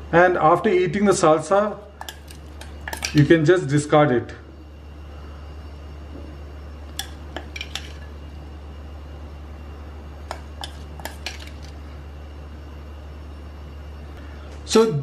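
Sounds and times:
metal spoon clinking on glass bowl: 2.0 - 3.3, 7.0 - 8.1, 10.3 - 11.7.

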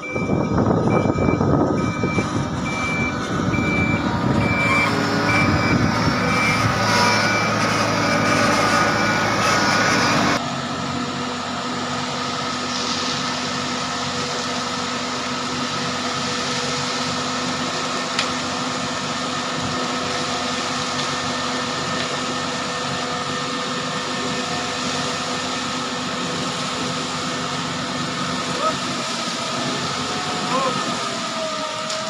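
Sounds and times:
diesel engine running: 0.0 - 32.0
concrete pouring down chute: 12.5 - 22.7, 23.6 - 31.8.

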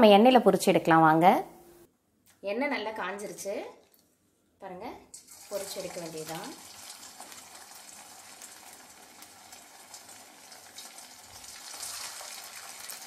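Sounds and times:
food sizzling in hot oil: 5.1 - 13.0.

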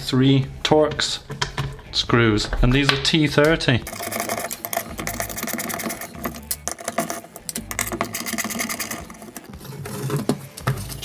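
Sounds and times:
screwdriver clicking and rattling: 3.9 - 9.5.

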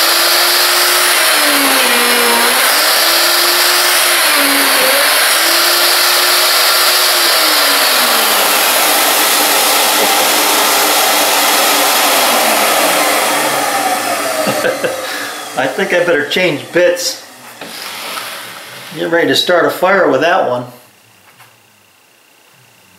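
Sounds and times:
router cutting wood: 0.0 - 20.5
dust extraction vacuum: 0.0 - 20.7.

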